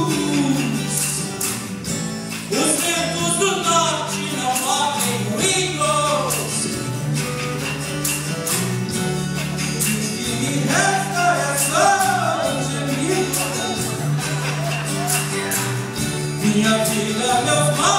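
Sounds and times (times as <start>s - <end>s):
person singing into microphone: 0.0s - 1.3s, 2.5s - 6.9s, 9.6s - 14.4s, 16.2s - 17.9s
bass notes: 0.0s - 17.9s
electric and acoustic guitars: 0.0s - 17.9s
percussion: 0.0s - 17.9s.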